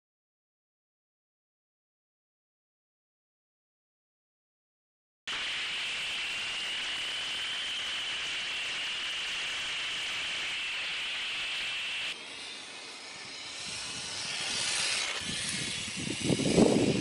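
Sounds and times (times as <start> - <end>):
electric motor whine: 5.3 - 17.0
tyre and wind hiss: 5.3 - 17.0.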